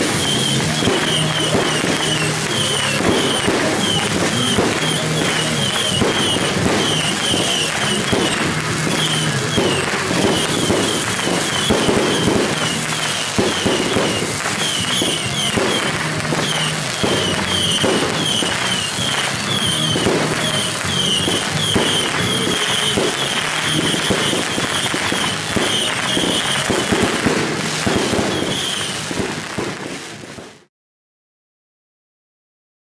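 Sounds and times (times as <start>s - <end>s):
fireworks bursting and crackling: 0.0s - 30.7s.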